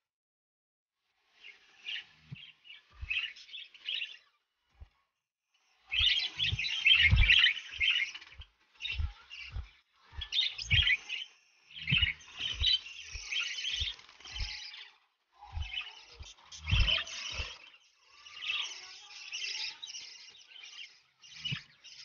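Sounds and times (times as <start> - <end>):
parrots chirping and chattering: 1.2 - 22.0
soft low thumps: 5.9 - 14.6, 15.4 - 17.6.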